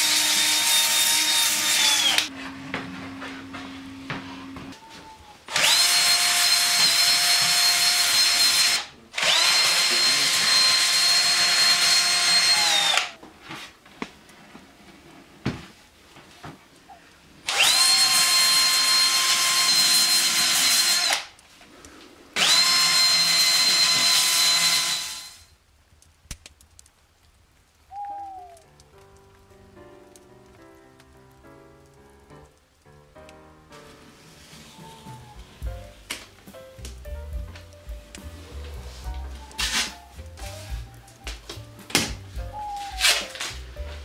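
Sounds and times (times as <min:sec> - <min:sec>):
power tool whining: 0:00.0 - 0:02.3, 0:05.5 - 0:13.2, 0:17.5 - 0:21.3, 0:22.4 - 0:25.5.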